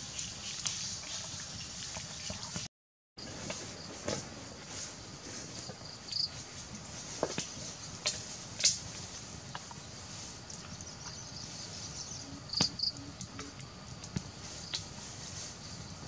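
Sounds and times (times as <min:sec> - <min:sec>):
steady high-pitched hiss: 0:00.0 - 0:02.6, 0:03.2 - 0:16.0
wood fire crackling: 0:06.4 - 0:11.9, 0:12.7 - 0:15.6.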